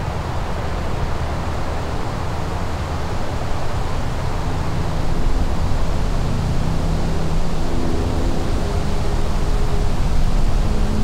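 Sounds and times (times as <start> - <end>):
steady rushing noise: 0.0 - 11.0
distant train horn: 7.0 - 11.0.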